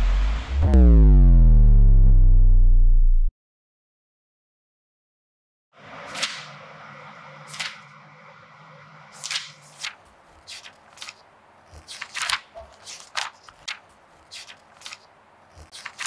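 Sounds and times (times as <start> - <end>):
sharp scuffs and rustles: 9.2 - 16.0.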